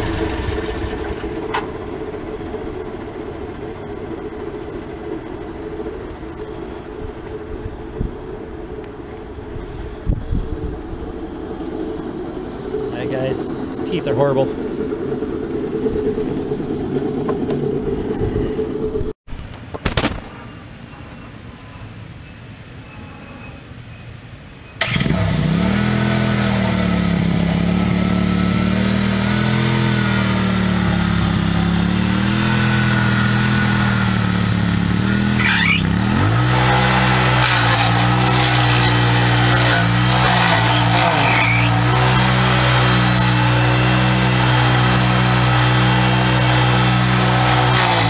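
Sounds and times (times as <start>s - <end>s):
stump grinder engine running: 0.0s - 6.2s, 24.8s - 48.0s.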